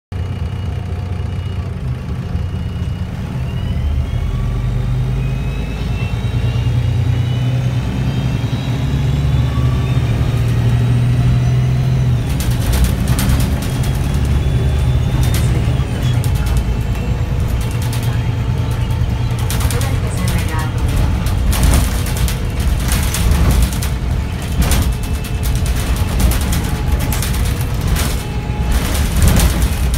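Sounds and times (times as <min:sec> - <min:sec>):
bus engine rumble: 0:00.1 - 0:29.9
drivetrain whine: 0:00.1 - 0:29.9
sharp rattles and clatters: 0:10.2 - 0:29.9.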